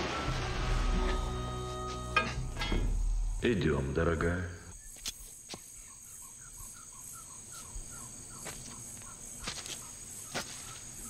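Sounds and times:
crickets trilling: 2.2s - 11.0s.

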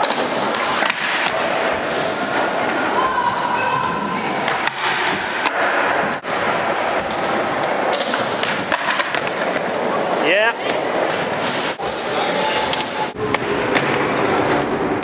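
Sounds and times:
skateboard rolling: 0.0s - 15.0s
chatter of echoing voices: 1.4s - 13.2s.

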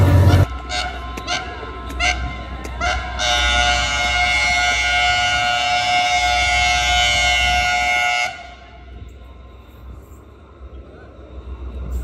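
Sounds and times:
locomotive air horn blast: 0.0s - 8.9s
low rumble of train: 0.0s - 12.0s.

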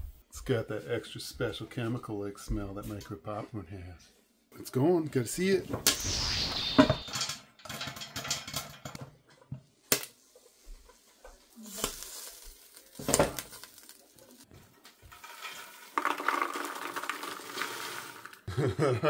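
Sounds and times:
popcorn tumbling into plastic bowl: 11.8s - 18.5s.

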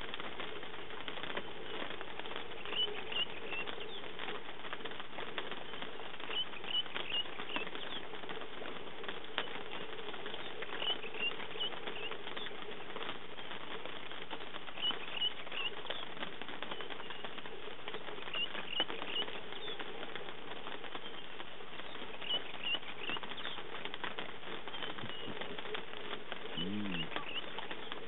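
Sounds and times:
light rain pattering: 0.0s - 28.0s
bird chirping: 2.6s - 4.0s, 5.7s - 8.0s, 10.4s - 12.6s, 14.7s - 16.1s, 18.3s - 19.8s, 20.9s - 23.7s, 24.6s - 25.8s, 26.4s - 28.0s.

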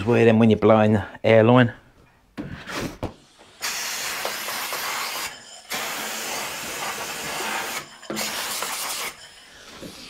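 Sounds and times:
compressed air hissing: 2.7s - 10.0s.

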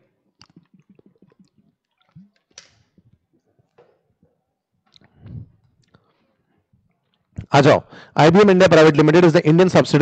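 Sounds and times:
person gulping and swallowing: 0.0s - 3.8s, 4.9s - 6.1s
man breathing: 7.8s - 8.2s.

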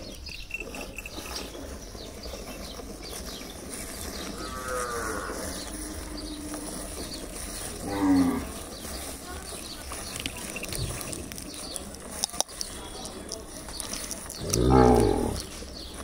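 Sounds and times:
cow mooing: 4.3s - 6.6s, 7.8s - 8.6s, 14.4s - 15.5s.

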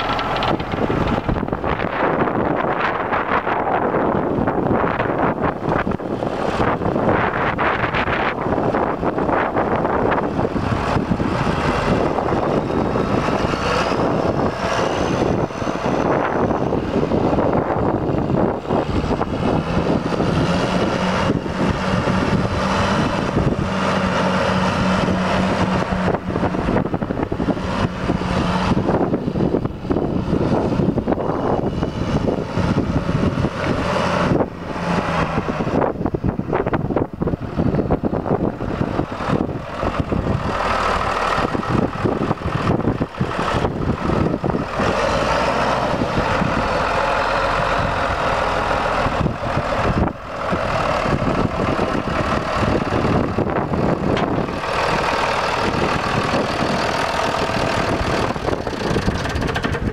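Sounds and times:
tractor diesel engine: 0.0s - 59.9s.

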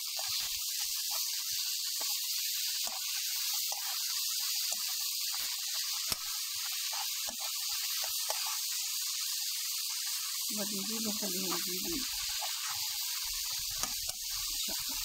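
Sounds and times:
vegetables sizzling in a frying pan: 0.0s - 15.0s
spatula tapping a pan: 2.8s - 8.6s, 11.4s - 15.0s.

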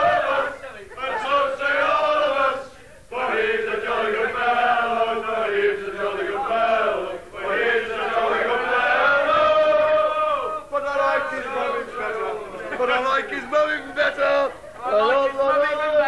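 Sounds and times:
group singing in unison: 0.0s - 12.8s.

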